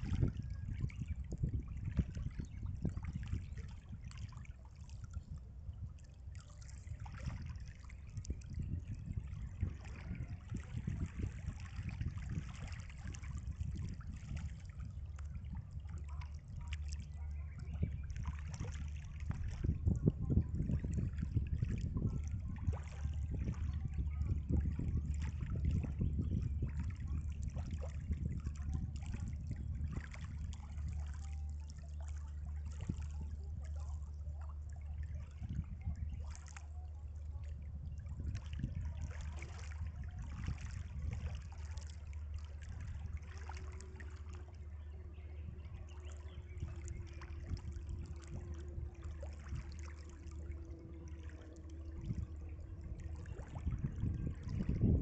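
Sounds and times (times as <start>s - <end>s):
small waves lapping: 0.0s - 55.0s
steady low rumble: 0.0s - 55.0s.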